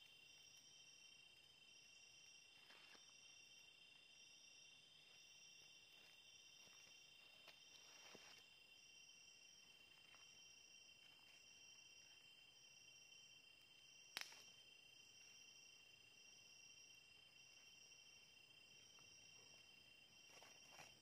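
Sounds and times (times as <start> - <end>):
night insects trilling: 0.0 - 21.0
faint snaps: 14.1 - 14.5
sharp crack: 14.1 - 14.5.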